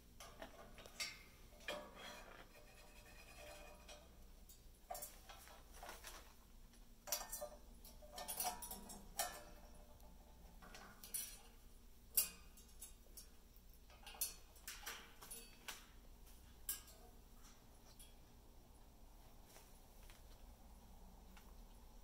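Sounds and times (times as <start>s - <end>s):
metallic clinks on cage: 7.1s - 16.0s, 16.6s - 17.1s.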